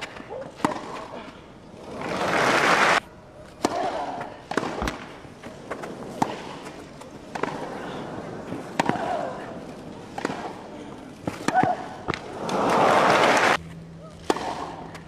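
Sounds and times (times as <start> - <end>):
racket striking tennis ball: 0.0 - 1.1, 3.5 - 7.7, 8.6 - 9.4, 10.1 - 10.6, 11.2 - 12.6, 14.2 - 15.0
crowd applause: 2.2 - 3.0, 12.4 - 13.6.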